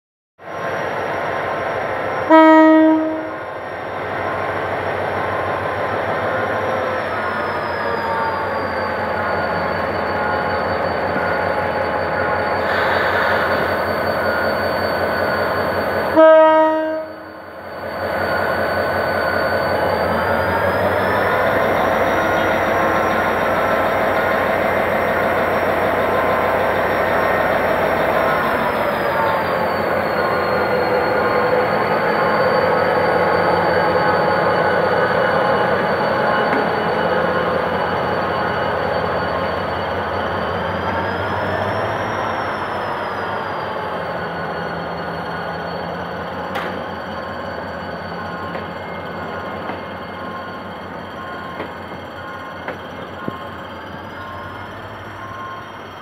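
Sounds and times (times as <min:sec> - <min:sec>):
passenger train rolling by: 0:00.4 - 0:56.0
locomotive horn blasts: 0:02.3 - 0:03.4, 0:16.1 - 0:17.3.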